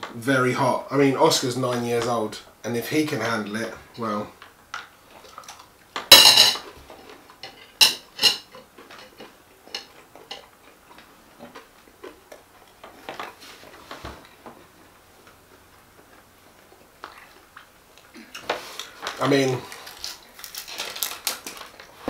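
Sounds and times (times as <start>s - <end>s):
chewing mouth sounds: 16.6s - 19.0s.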